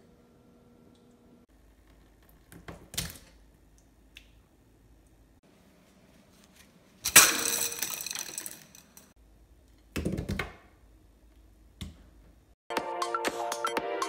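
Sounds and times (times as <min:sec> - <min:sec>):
electronic music with a beat: 0:12.7 - 0:14.0.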